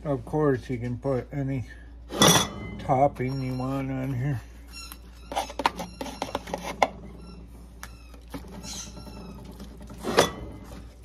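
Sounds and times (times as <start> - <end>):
squeaky dog toy squeaking: 2.2 - 10.3.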